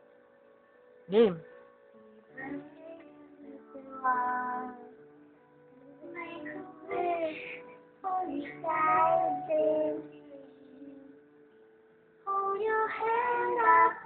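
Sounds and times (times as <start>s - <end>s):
backing music track: 0.0s - 14.0s
girl singing: 2.0s - 5.1s, 5.8s - 11.2s, 12.3s - 14.0s.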